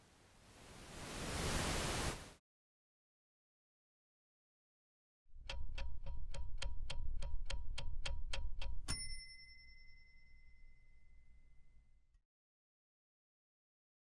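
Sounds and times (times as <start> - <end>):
steady ticks: 5.3 - 9.1
bright ringing ding: 8.9 - 12.0.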